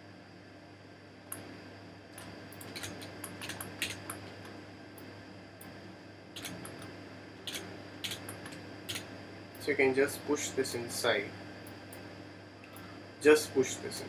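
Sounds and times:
steady low hum: 0.0s - 14.0s
mouse and keyboard clicks: 6.4s - 6.8s, 7.5s - 9.0s.

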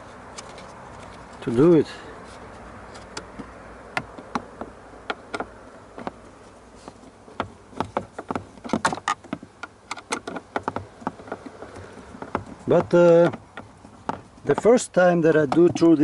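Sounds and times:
screwdriver tapping on plastic: 7.4s - 14.8s, 15.4s - 16.0s.

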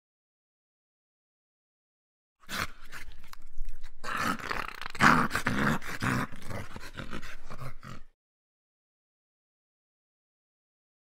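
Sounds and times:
dog growling: 2.4s - 8.2s
teeth crunching on bone: 2.5s - 7.6s.

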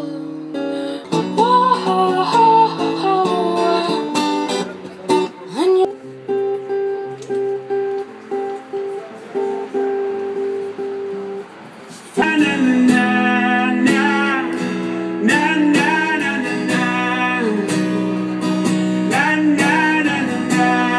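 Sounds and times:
person singing: 0.0s - 4.5s, 5.2s - 6.0s, 12.2s - 18.3s, 19.0s - 20.9s
acoustic guitar picked notes: 0.0s - 20.9s
strummed acoustic guitar: 0.0s - 20.9s.

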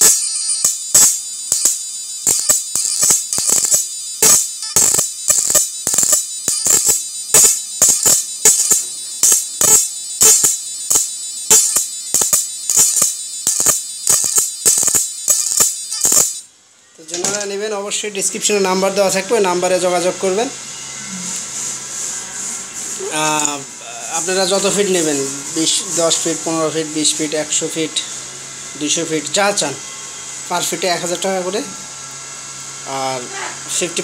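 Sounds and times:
loud sparking cracks: 0.0s - 16.5s
high-pitched electrical whine: 0.0s - 34.0s.

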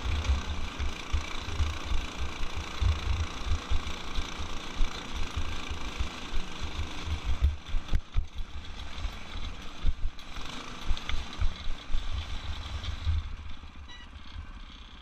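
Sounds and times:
small engine under throttle: 0.0s - 15.0s.

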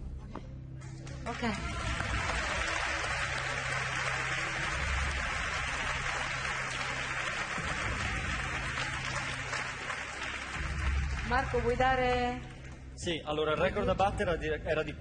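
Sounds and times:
audience applauding: 1.2s - 12.6s.

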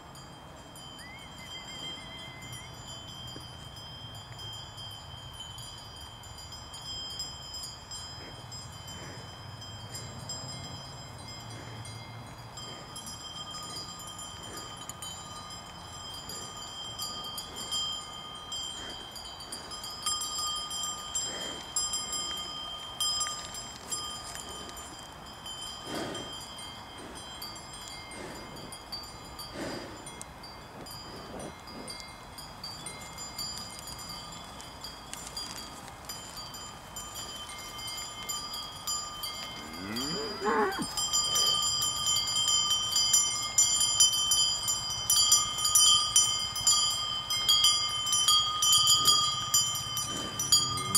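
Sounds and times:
cowbells clanking: 0.0s - 50.9s.

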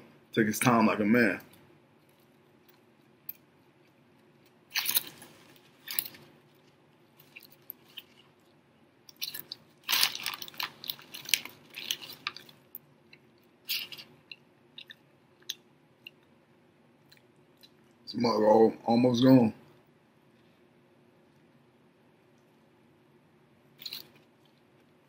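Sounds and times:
crunchy chewing and biting: 9.1s - 16.2s.

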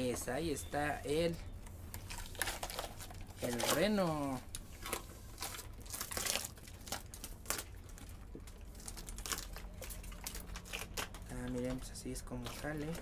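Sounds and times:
paper tearing and rustling: 2.0s - 8.0s.

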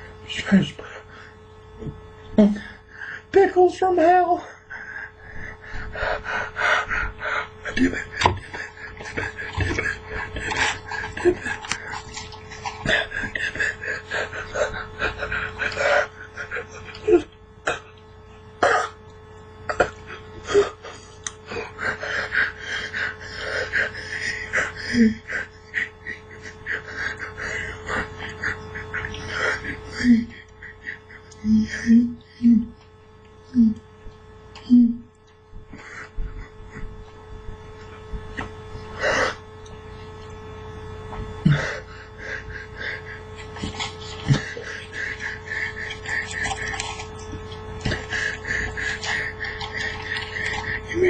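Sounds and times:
steady hum: 0.0s - 51.0s.

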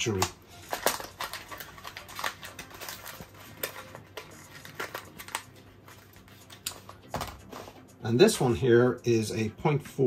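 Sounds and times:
plastic packaging rustling: 0.0s - 7.7s
plastic parts clicking: 0.1s - 5.4s.

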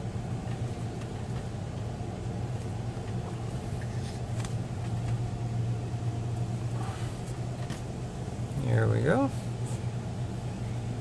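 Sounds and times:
car engine idling: 0.0s - 11.0s
car wash machinery hum: 0.0s - 11.0s.

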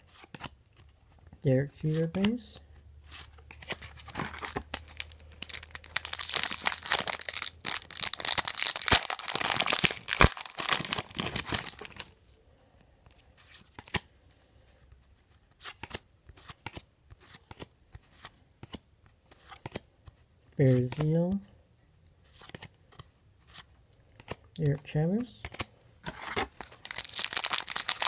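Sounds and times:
wrapper crumpling and tearing: 3.7s - 12.1s, 26.2s - 28.0s.

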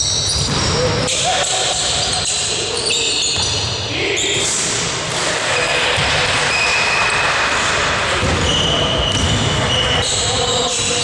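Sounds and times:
steady hall noise: 0.0s - 11.0s
ball bouncing on court floor: 3.3s - 3.8s, 4.4s - 6.4s, 8.1s - 10.0s.

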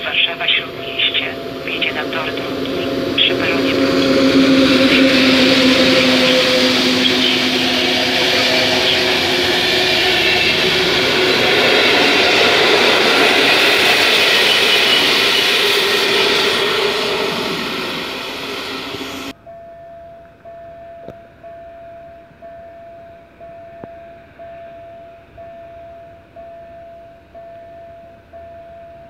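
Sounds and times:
level-crossing warning beeps: 0.0s - 29.0s
train wheels clattering on track: 0.1s - 19.3s.

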